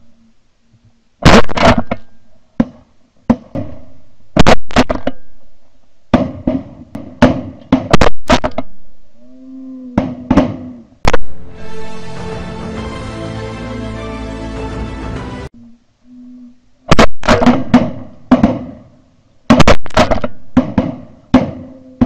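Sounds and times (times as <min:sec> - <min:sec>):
shotgun blasts: 0:01.2 - 0:05.4, 0:06.1 - 0:08.8, 0:16.9 - 0:18.9, 0:19.5 - 0:21.8.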